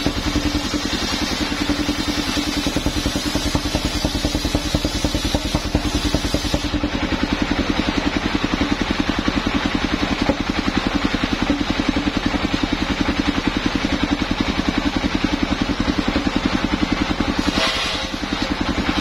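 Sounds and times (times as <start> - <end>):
saw blade cutting log hiss: 0.0 - 6.8, 17.3 - 19.0
sawmill engine chugging: 0.0 - 19.0.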